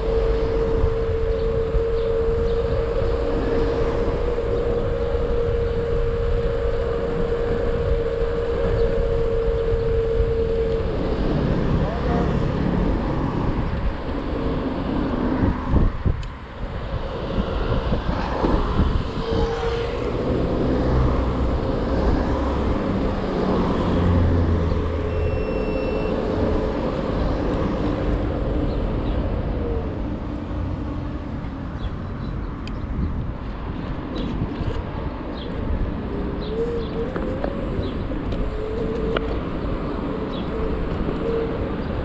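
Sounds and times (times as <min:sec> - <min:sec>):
thin steady whine: 0:00.0 - 0:24.1
car traffic: 0:00.0 - 0:42.0
wind rumble on microphone: 0:00.0 - 0:42.0.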